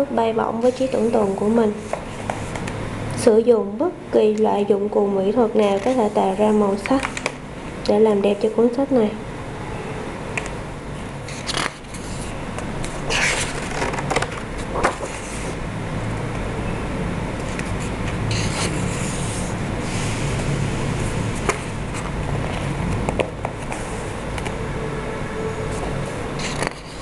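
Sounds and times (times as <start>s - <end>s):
paper pages rustling: 11.3s - 15.6s, 17.4s - 19.6s, 26.4s - 27.0s.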